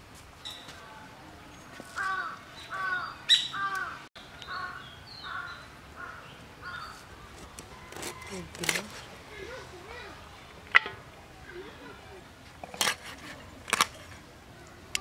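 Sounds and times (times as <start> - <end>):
crow cawing: 2.0 - 6.9.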